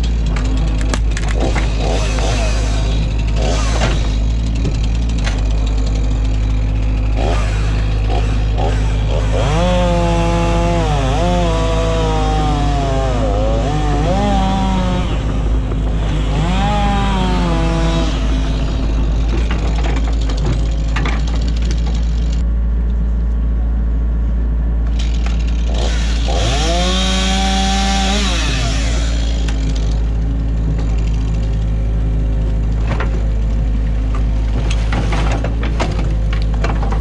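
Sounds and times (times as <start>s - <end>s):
heavy machinery engine drone: 0.0s - 37.0s
wood knocking and cracking: 0.2s - 2.3s, 18.5s - 22.4s, 34.0s - 37.0s.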